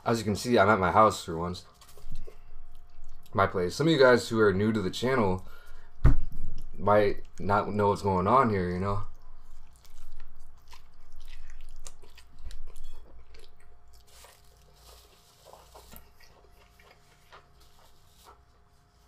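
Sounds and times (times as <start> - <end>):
person chewing food: 1.7 - 3.4, 8.6 - 19.0.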